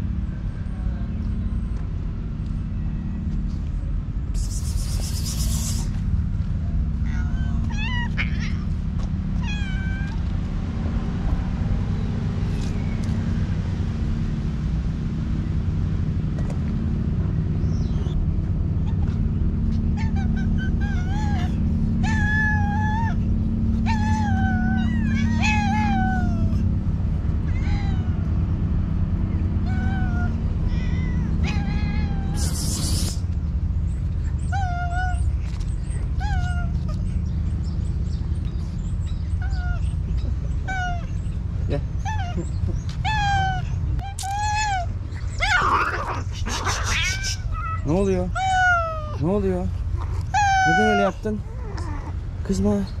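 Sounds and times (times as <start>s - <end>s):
low rumble: 0.0s - 50.6s
cats meowing: 7.0s - 10.3s, 19.8s - 26.7s, 27.4s - 28.4s, 29.6s - 33.3s, 34.5s - 37.2s, 39.3s - 41.4s, 42.0s - 49.2s, 50.0s - 52.2s.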